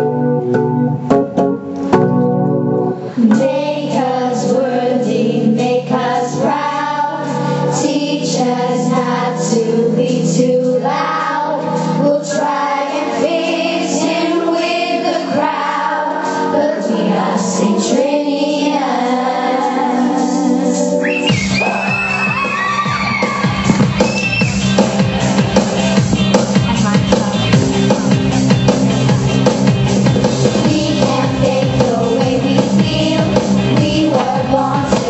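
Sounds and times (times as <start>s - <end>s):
musical accompaniment with held chords: 0.0s - 35.0s
young women singing together: 3.1s - 21.0s, 30.5s - 35.0s.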